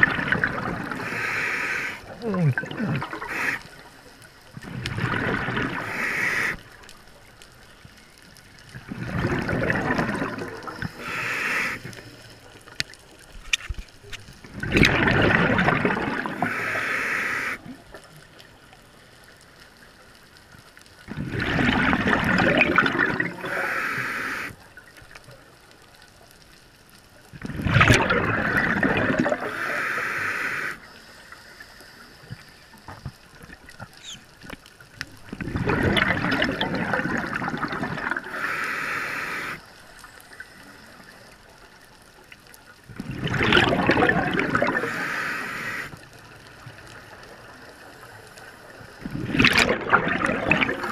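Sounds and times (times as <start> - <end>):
bubbling rush: 0.0 - 3.9, 4.5 - 6.8, 8.7 - 12.0, 14.4 - 17.8, 21.1 - 24.5, 27.4 - 30.2, 35.2 - 39.6, 42.9 - 45.9, 48.9 - 50.9
diver breathing through regulator: 0.9 - 3.9, 5.6 - 6.7, 10.1 - 12.3, 16.3 - 17.6, 23.4 - 24.6, 29.3 - 32.6, 38.2 - 39.7, 44.5 - 46.0
regulator hiss: 5.8 - 6.7, 10.8 - 12.5, 16.4 - 17.6, 23.4 - 24.6, 29.5 - 32.8, 38.3 - 41.3, 44.8 - 46.0.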